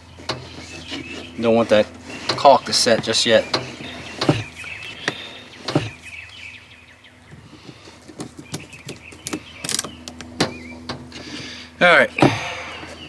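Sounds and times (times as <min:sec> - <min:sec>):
sharp knocks and clicks: 0:02.2 - 0:06.0, 0:07.6 - 0:11.1.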